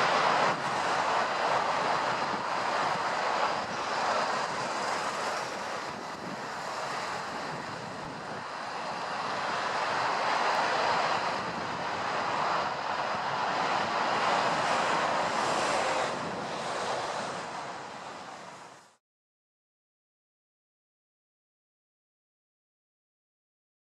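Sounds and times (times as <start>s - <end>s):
jet engine rush: 0.0s - 19.0s.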